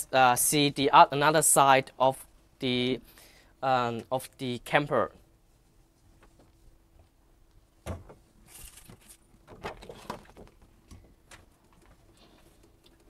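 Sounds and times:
faint steady hum: 0.0 - 13.0
rustling: 8.3 - 13.0.

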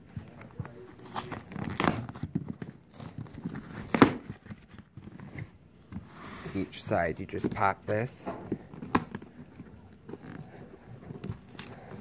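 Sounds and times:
cardboard scraping and rustling: 0.2 - 8.1
cardboard snapping: 1.1 - 4.6.

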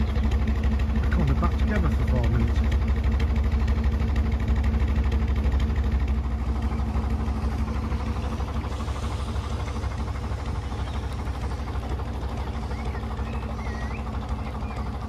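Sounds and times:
boat diesel engine running: 0.0 - 15.0.

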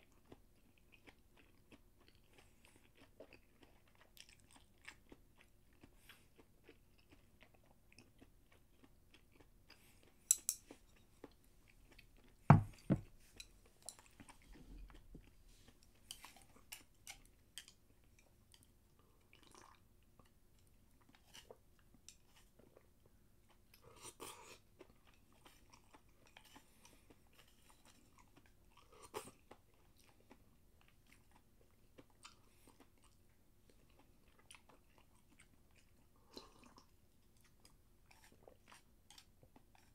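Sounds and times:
person chewing: 0.0 - 39.9
chopsticks clicking: 10.3 - 10.6
loud thump: 12.5 - 13.0.

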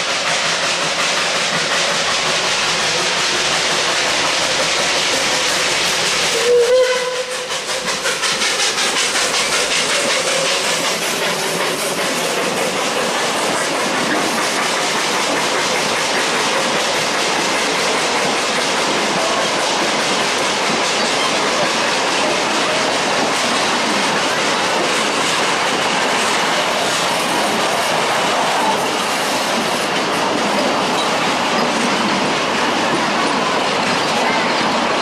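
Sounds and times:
train wheels hissing on rail: 0.0 - 35.0
steam whistle blast: 6.3 - 7.8.

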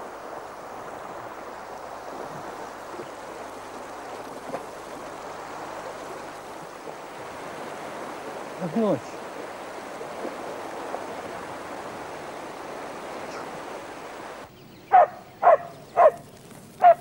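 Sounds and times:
stream rushing over stones: 0.0 - 14.5.

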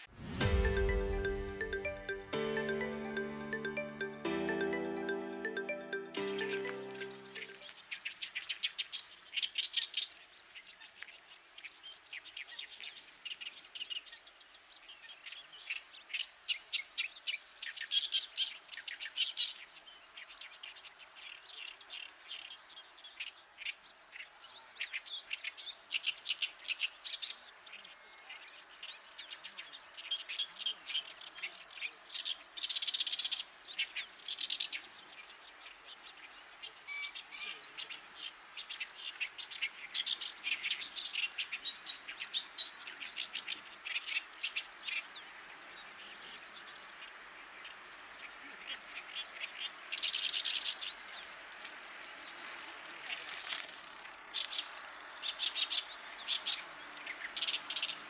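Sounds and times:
reed warbler singing: 54.1 - 58.0.

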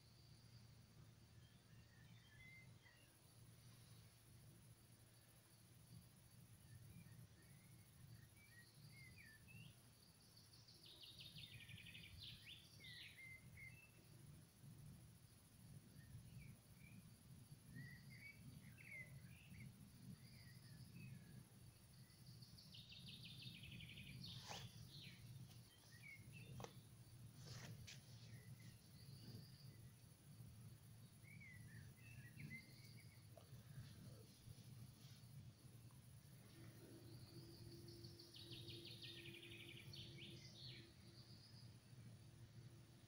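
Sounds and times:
birdsong chirps and trills: 5.9 - 14.4, 15.8 - 42.6.

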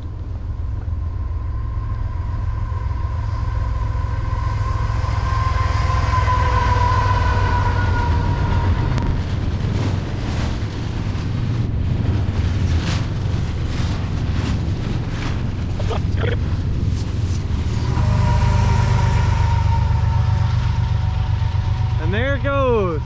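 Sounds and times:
freight train rumbling past: 0.0 - 23.0
steady high tone: 17.8 - 23.0.

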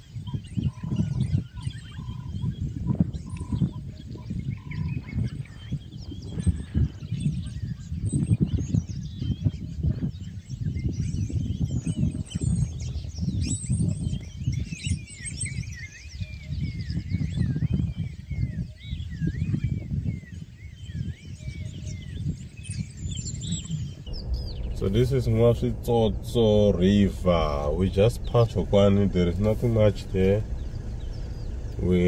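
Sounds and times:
birds chirping: 0.0 - 32.0
steady low rumble: 24.0 - 32.0.

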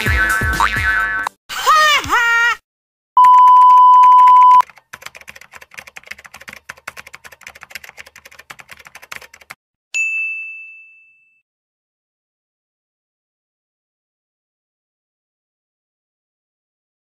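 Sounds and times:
electronic beep: 3.2 - 4.6
typewriter keys clacking: 4.6 - 9.6.

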